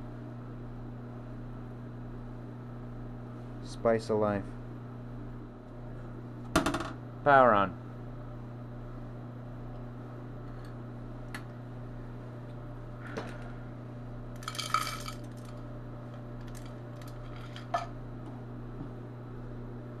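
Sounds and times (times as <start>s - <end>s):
mains hum: 0.0s - 20.0s
capacitor sizzling crackle: 14.3s - 17.7s.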